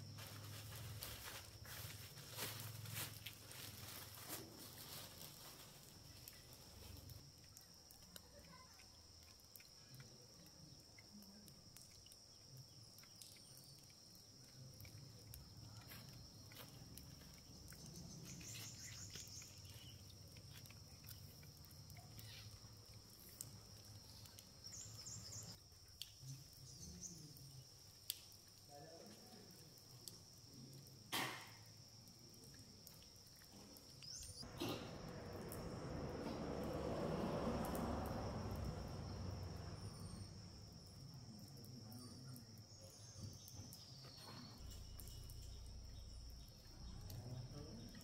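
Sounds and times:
plastic bag rustling: 0:00.0 - 0:07.1.

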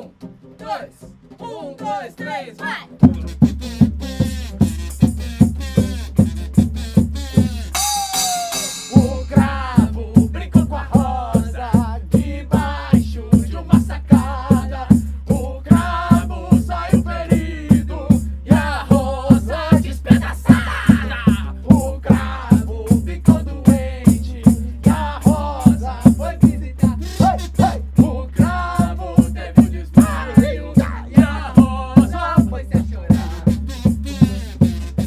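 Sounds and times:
rock and roll song: 0:02.2 - 0:35.0
pounding drum beat: 0:03.0 - 0:35.0
blown note with downward bend: 0:07.5 - 0:09.7
person singing: 0:07.7 - 0:33.6.

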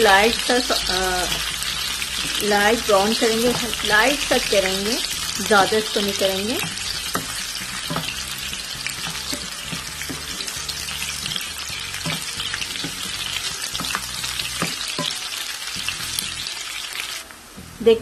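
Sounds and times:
onions sizzling in hot oil: 0:00.0 - 0:18.0
wooden spatula scraping a pan: 0:06.6 - 0:15.2.

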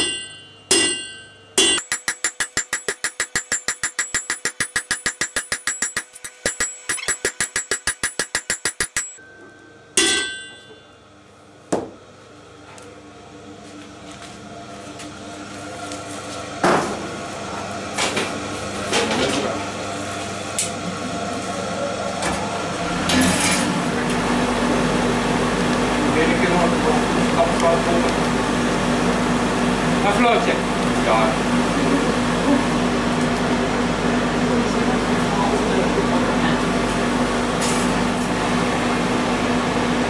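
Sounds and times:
hammer ringing on anvil: 0:00.0 - 0:11.0
metal clinks: 0:01.8 - 0:09.2.

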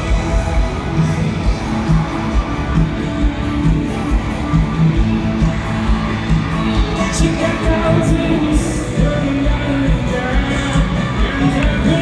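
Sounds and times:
live pop-rock band: 0:00.0 - 0:12.0
person singing: 0:06.7 - 0:12.0.

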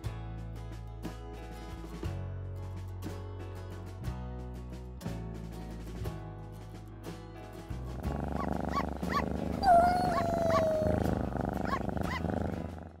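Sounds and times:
music: 0:00.0 - 0:13.0
cat meowing: 0:08.7 - 0:12.2.

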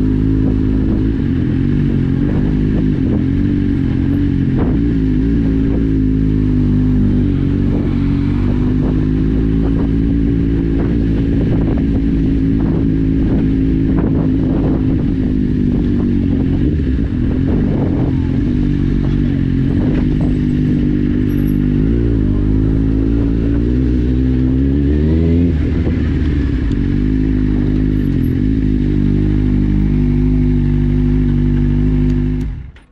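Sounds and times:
motorcycle engine at low revs: 0:00.0 - 0:32.9.

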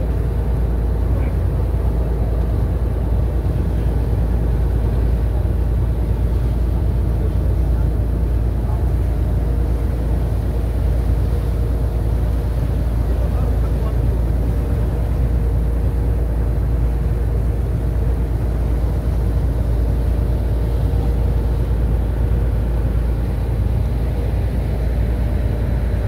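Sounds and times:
ferry engine droning: 0:00.0 - 0:26.0
water churning alongside hull: 0:00.0 - 0:26.0.

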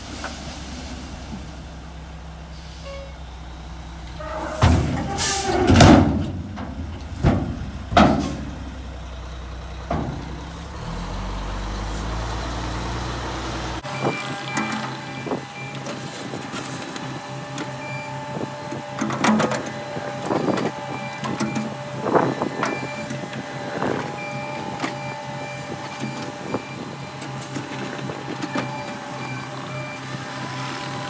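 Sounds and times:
diesel engine running: 0:00.0 - 0:31.0
bucket and tracks clanking: 0:04.0 - 0:12.3, 0:13.8 - 0:30.0.

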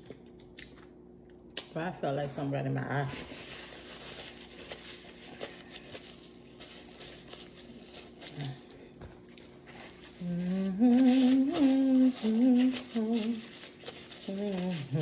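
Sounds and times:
paper towel rustling: 0:03.0 - 0:08.7, 0:09.5 - 0:15.0
woman humming: 0:10.1 - 0:13.6, 0:14.2 - 0:15.0.

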